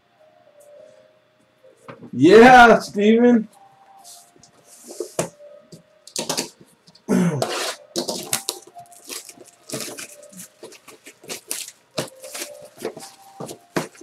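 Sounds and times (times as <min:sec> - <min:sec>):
plastic wrapper crinkling and tearing: 0:08.0 - 0:13.2
cards rustling and clicking: 0:08.0 - 0:14.0.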